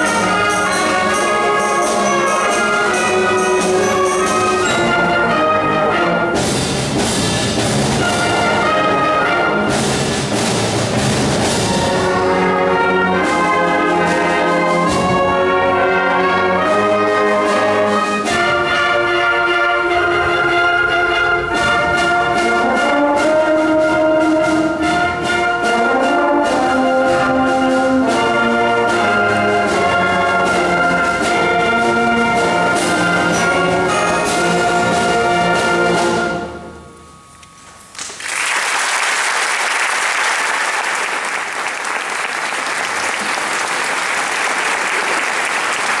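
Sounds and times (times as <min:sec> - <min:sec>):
concert band playing: 0:00.0 - 0:38.4
audience applauding: 0:37.9 - 0:46.0.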